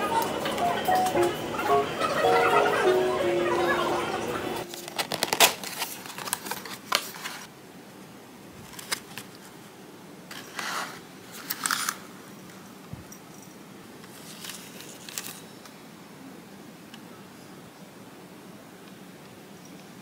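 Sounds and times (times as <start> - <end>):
papery rustles: 4.6 - 7.5, 8.6 - 9.6, 14.1 - 15.5.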